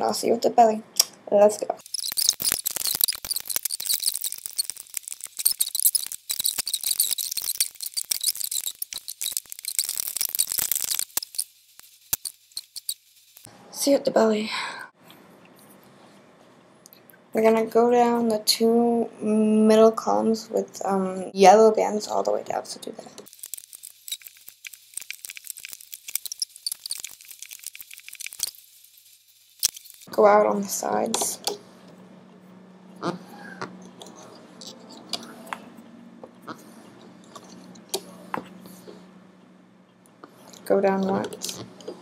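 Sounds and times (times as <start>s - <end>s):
rubber bands clicking and squeaking: 1.8s - 13.5s, 23.2s - 30.1s, 33.0s - 38.2s, 40.6s - 42.0s.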